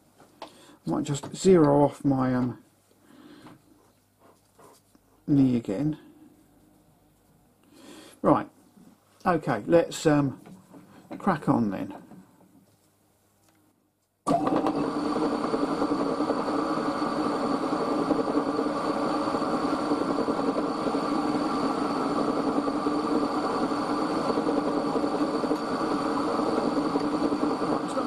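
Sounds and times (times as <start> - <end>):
high whine: 14.3 - 28.0.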